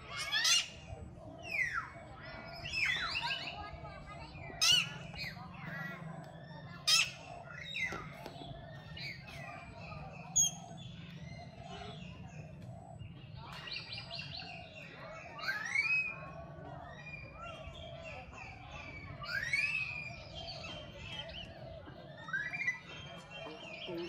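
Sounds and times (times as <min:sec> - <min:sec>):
animal chirps and squeals: 0:00.0 - 0:23.9.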